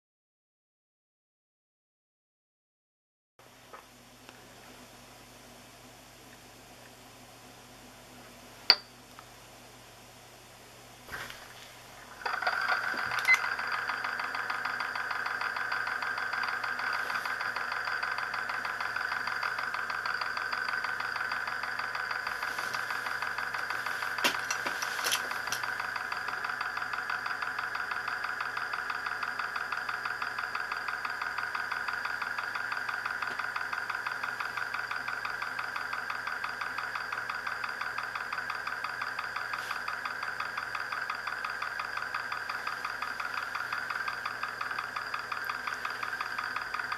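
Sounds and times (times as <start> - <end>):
spinning disc whirring on glass: 11.1 - 46.9
sharp ticks: 25.4 - 46.9.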